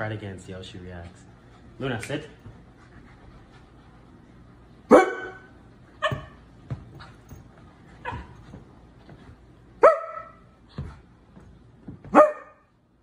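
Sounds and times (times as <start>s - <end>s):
dog barking: 4.9s - 6.4s, 9.8s - 10.4s, 12.1s - 12.7s.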